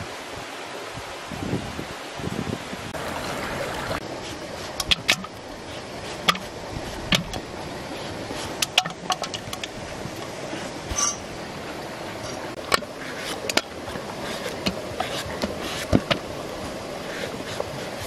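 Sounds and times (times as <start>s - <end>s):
steady hiss: 2.3s - 18.0s.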